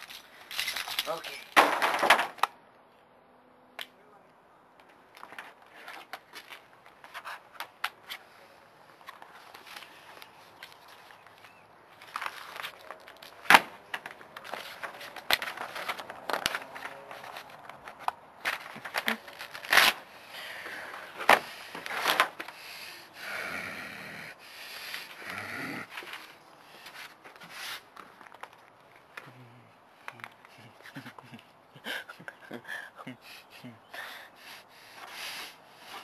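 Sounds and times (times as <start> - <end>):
paper crinkling: 9.0 - 20.0
paper tearing: 19.0 - 20.0.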